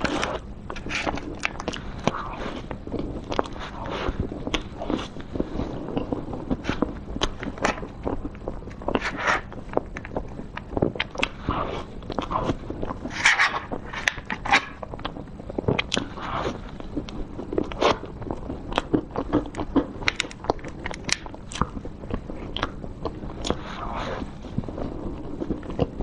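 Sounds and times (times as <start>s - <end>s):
chewing and lip smacks: 0.8s - 3.6s, 4.4s - 13.0s, 14.1s - 16.1s, 16.7s - 23.6s.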